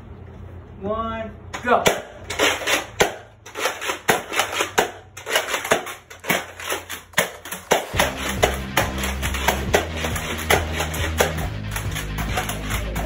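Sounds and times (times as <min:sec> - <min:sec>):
music with steady bass: 0:08.0 - 0:13.0.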